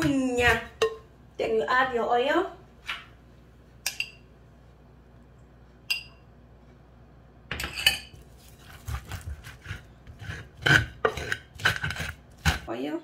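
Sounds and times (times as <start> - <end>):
wooden pestle knocking and grinding: 8.6 - 12.7.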